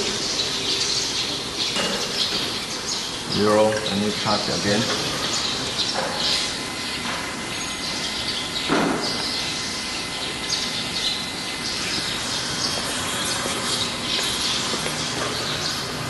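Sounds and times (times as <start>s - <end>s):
workshop background noise: 0.0s - 16.0s.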